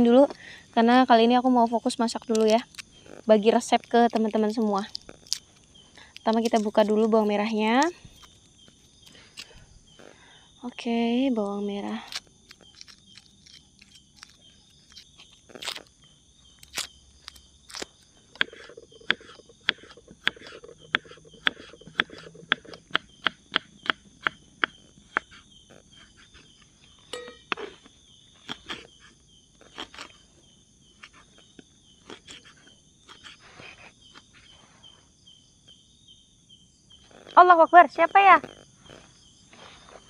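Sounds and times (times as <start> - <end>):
night insects chorus: 0.0 - 40.0
knife chopping on wooden board: 18.4 - 25.3.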